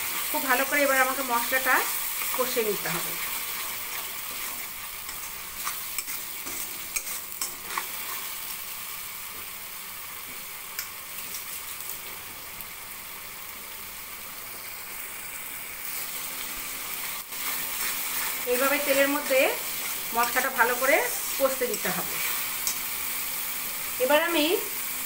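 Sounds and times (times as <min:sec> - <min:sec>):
spice paste sizzling in oil: 0:00.0 - 0:25.0
metal spatula scraping pan: 0:03.2 - 0:08.3, 0:17.4 - 0:22.9.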